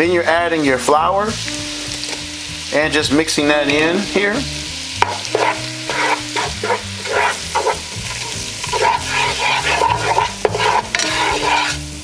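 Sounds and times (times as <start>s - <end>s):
background music with bass: 0.0s - 12.0s
butter and onions sizzling: 0.0s - 12.0s
spatula scraping a pot: 5.0s - 12.0s.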